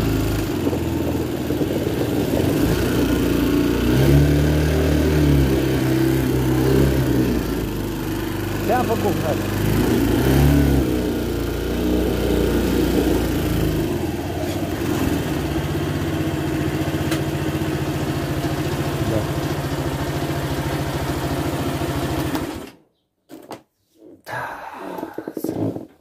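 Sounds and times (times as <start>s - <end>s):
atv engine running: 0.0s - 22.7s.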